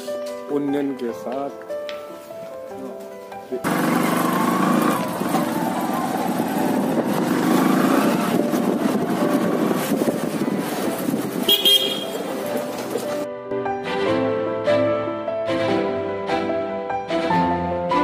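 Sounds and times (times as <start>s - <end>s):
motorcycle engine and road noise: 3.6s - 13.3s
motorcycle horn toot: 11.5s - 12.3s.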